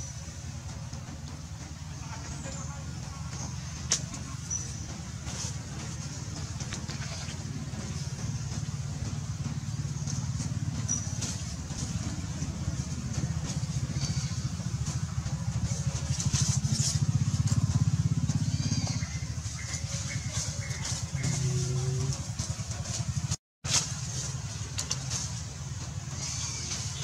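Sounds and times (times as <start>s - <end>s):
small engine humming: 0.0s - 27.0s.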